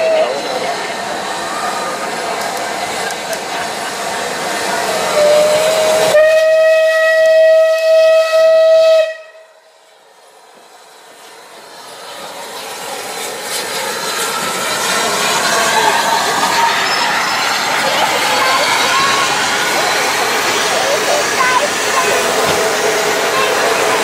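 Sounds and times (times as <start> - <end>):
steam whistle: 0.0 - 0.5, 5.1 - 9.6
locomotive hiss and rumble: 0.0 - 6.6, 9.6 - 24.0.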